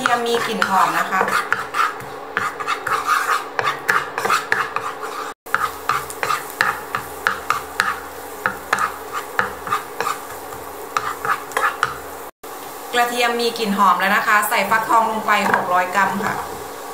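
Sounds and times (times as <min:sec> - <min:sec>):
wooden spatula scraping a pan: 0:00.0 - 0:12.2, 0:15.3 - 0:16.9
garlic sizzling in oil: 0:00.0 - 0:16.9.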